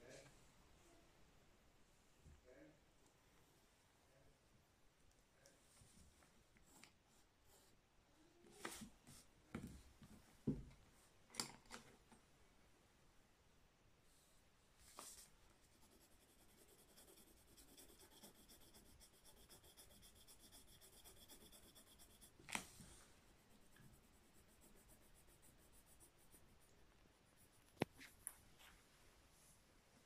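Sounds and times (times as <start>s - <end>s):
pencil scratching on paper: 15.6s - 22.4s, 23.4s - 28.2s.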